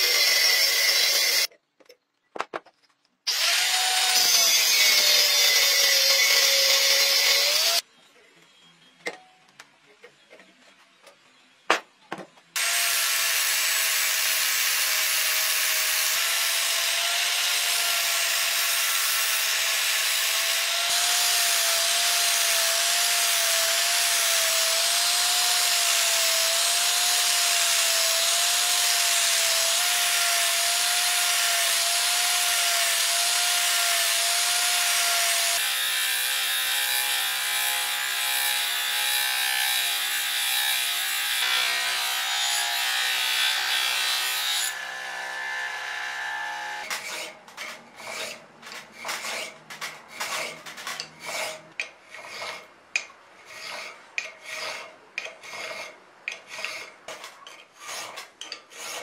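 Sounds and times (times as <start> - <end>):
angle grinder grinding steel: 0.0 - 1.5, 3.3 - 7.8, 12.6 - 59.0
bench grinder hum: 0.0 - 1.5.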